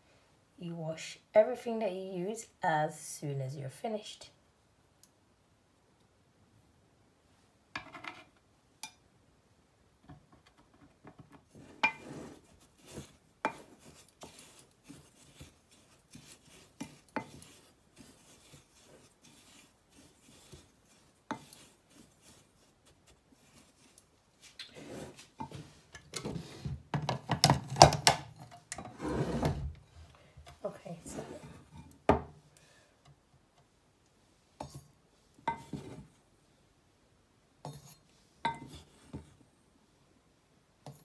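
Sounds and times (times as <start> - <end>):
knocks and rattles of handling: 10.0 - 17.5, 25.3 - 30.7
spatula scraping spice in jug: 11.5 - 26.7, 37.7 - 39.4.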